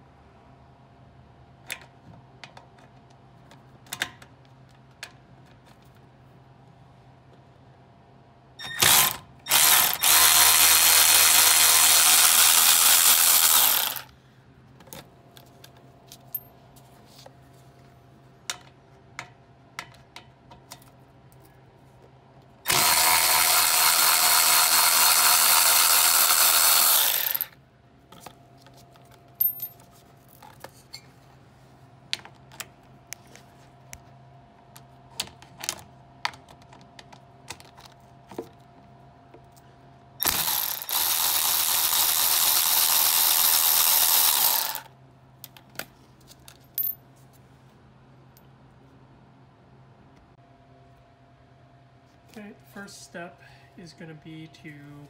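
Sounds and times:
cordless ratchet spinning: 0:08.7 - 0:14.1, 0:22.7 - 0:27.6, 0:40.2 - 0:44.9.

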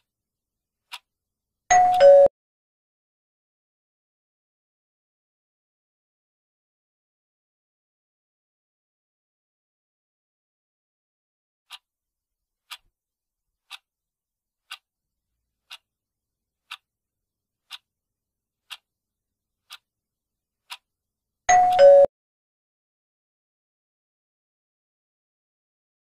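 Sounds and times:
clock ticking: 0:00.9 - 0:01.1, 0:01.7 - 0:02.3, 0:11.7 - 0:11.9, 0:12.7 - 0:12.9, 0:13.7 - 0:13.9, 0:14.6 - 0:14.9, 0:15.6 - 0:15.9, 0:16.6 - 0:16.9, 0:17.6 - 0:17.9, 0:18.6 - 0:18.9, 0:19.6 - 0:19.9, 0:20.6 - 0:20.9, 0:21.5 - 0:22.1.

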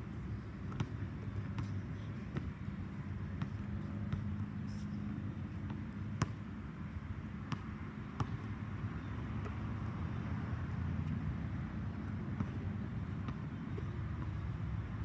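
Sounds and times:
basketball bouncing: 0:05.7 - 0:06.4, 0:07.5 - 0:08.5, 0:12.0 - 0:14.4.

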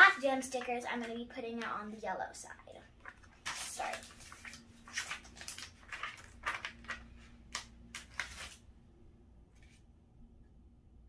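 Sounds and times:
stickers peeling and rustling: 0:03.0 - 0:08.6.

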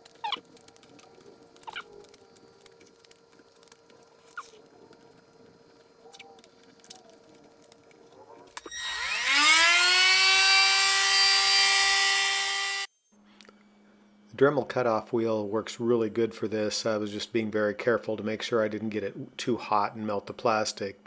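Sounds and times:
tape squeaks: 0:00.0 - 0:02.4, 0:08.6 - 0:12.9
rotary tool whining: 0:08.6 - 0:12.9.

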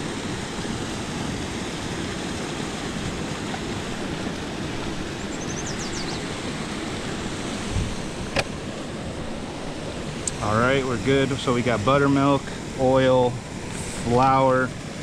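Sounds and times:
water rushing from spillway: 0:00.0 - 0:15.0.

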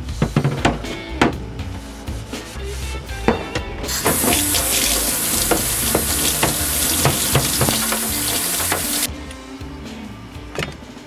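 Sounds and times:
tap water running into sink: 0:03.9 - 0:09.1.

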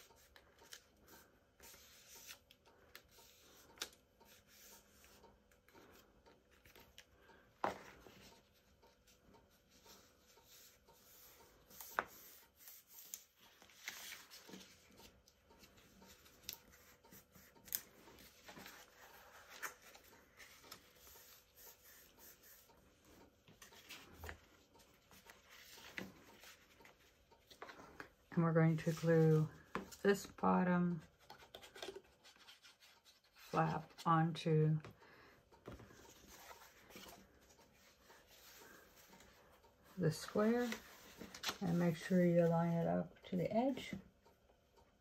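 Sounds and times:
cardstock rustling as folded: 0:09.8 - 0:22.0, 0:28.7 - 0:30.4, 0:40.1 - 0:42.5.

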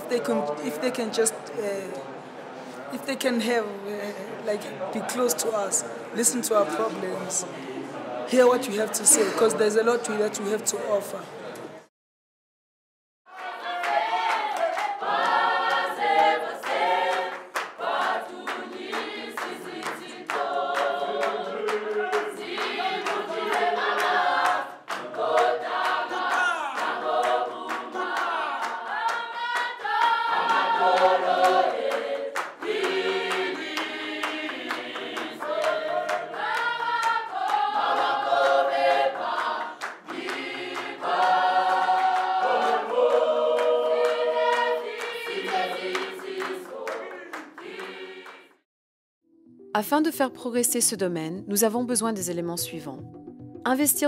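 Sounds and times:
choir singing in harmony: 0:03.7 - 0:11.2, 0:13.3 - 0:48.6
percussive claps: 0:13.3 - 0:48.5.

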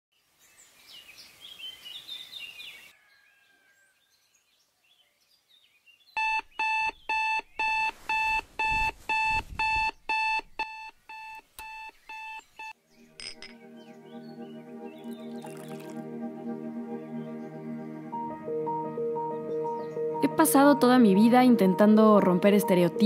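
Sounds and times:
smartphone alarm beeping: 0:06.2 - 0:12.8
birds chirping: 0:09.9 - 0:16.0.

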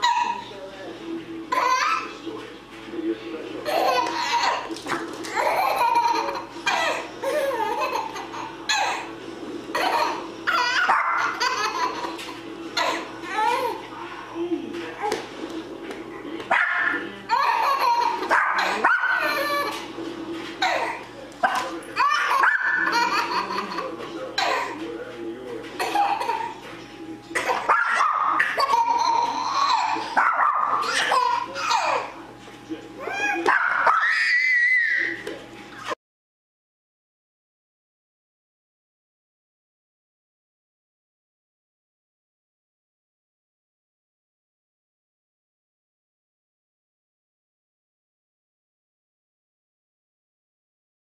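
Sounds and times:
baby laughing: 0:01.5 - 0:02.2, 0:03.6 - 0:09.1, 0:09.7 - 0:13.8, 0:17.3 - 0:19.9, 0:20.6 - 0:24.8, 0:25.8 - 0:26.6, 0:27.4 - 0:32.2.

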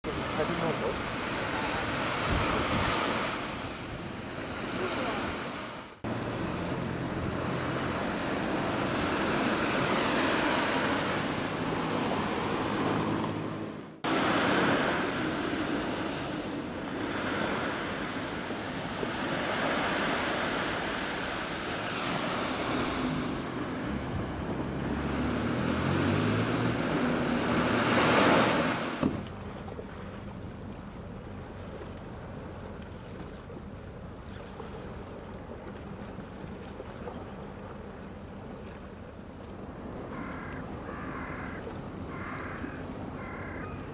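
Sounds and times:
waves washing on shore: 0:00.1 - 0:43.9
wind buffeting microphone: 0:01.1 - 0:04.4.

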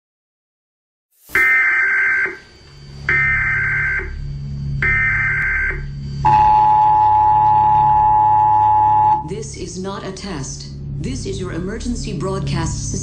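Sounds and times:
two-tone attention signal: 0:01.3 - 0:02.5, 0:03.1 - 0:09.3
high data tone bursts: 0:01.3 - 0:09.3
low pulsing drone: 0:01.4 - 0:13.0.

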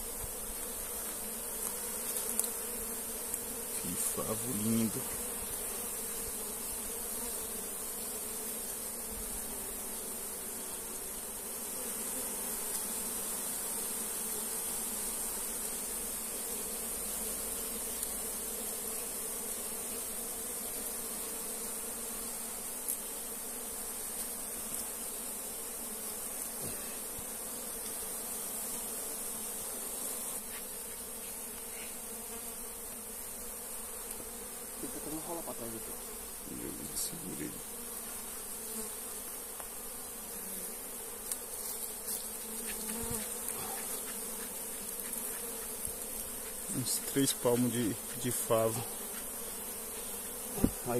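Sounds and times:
bees buzzing: 0:00.0 - 0:50.9
steady high hiss: 0:34.1 - 0:38.2, 0:41.2 - 0:50.9.

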